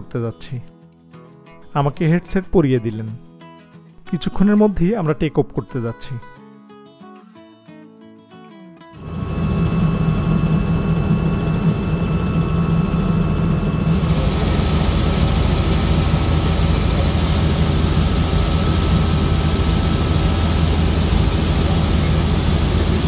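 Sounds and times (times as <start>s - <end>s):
helicopter engine and rotor drone: 9.0s - 23.0s.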